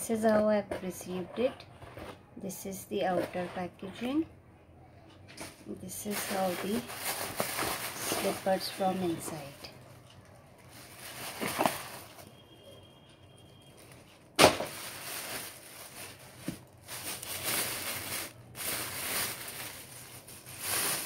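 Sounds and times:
plastic bags rustling: 5.9 - 12.3, 13.7 - 21.0.

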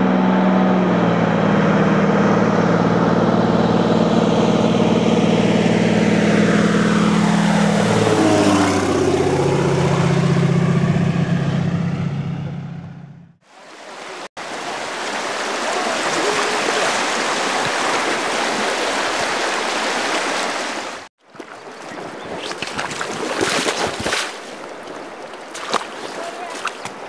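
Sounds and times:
stream water rushing: 13.4 - 27.0.

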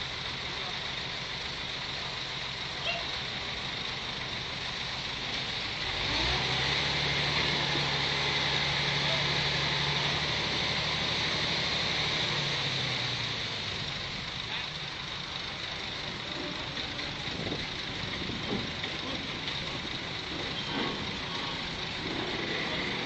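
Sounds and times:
heavy machine engine running: 0.0 - 23.0.

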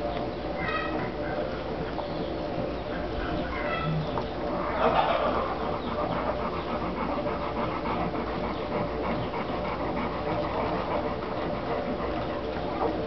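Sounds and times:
dog panting: 1.0 - 13.0.

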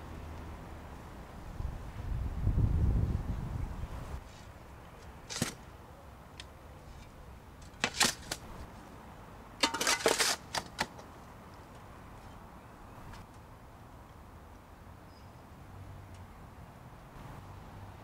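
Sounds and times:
spade scraping soil in wheelbarrow: 9.6 - 10.6.

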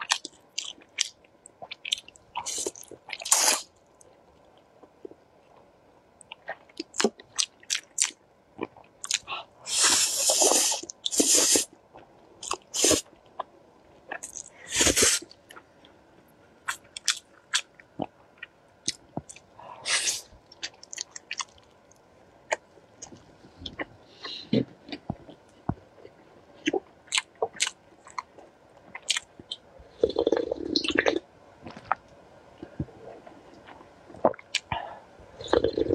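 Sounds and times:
noisy noodle slurps: 9.7 - 11.7, 12.7 - 13.0.

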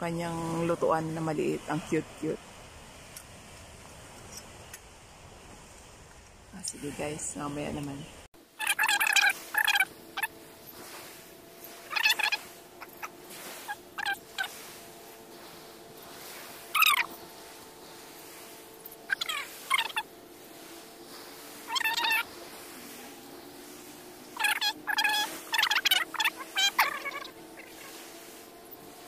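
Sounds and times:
faint steady hum: 0.0 - 29.0
birds warbling: 8.1 - 29.0.

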